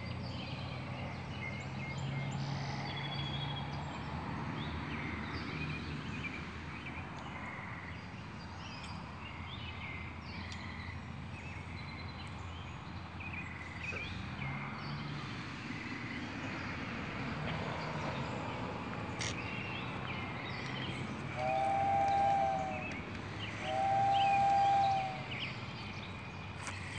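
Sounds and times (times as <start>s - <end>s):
birds chirping: 19.1s - 26.9s
two-note boat whistle blasts: 21.3s - 25.4s.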